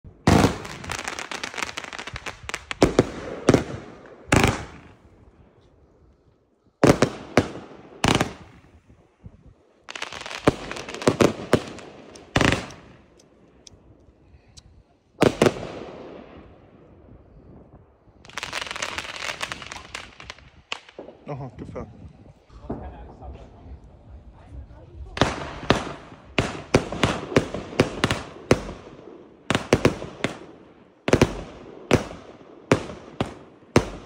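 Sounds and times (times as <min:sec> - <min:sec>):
firework bangs: 0:00.2 - 0:05.0, 0:06.8 - 0:08.7, 0:09.9 - 0:13.2, 0:15.2 - 0:16.8, 0:18.2 - 0:21.3, 0:25.0 - 0:34.0
firework crackling: 0:00.2 - 0:05.0, 0:09.9 - 0:13.7, 0:18.2 - 0:21.3, 0:22.7 - 0:34.0.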